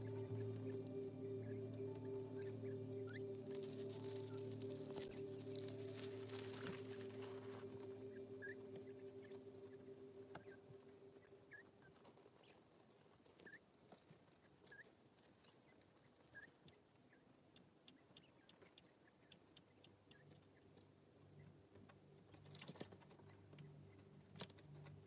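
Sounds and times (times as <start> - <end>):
beaks and feet scratching straw: 0.0 - 10.6
chicks peeping: 0.0 - 25.0.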